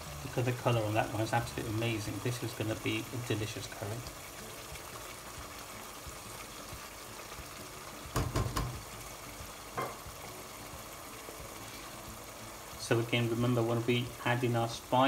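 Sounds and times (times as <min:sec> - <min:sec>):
curry sizzling and bubbling: 0:00.0 - 0:15.0
spatula knocking against pot: 0:08.2 - 0:08.8.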